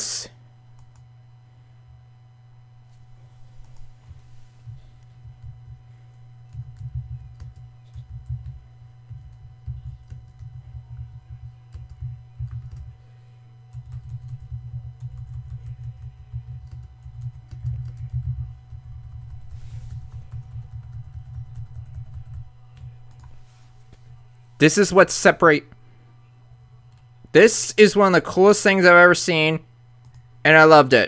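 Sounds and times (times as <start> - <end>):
typing on computer keyboard: 6.5 - 12.9, 13.7 - 23.3.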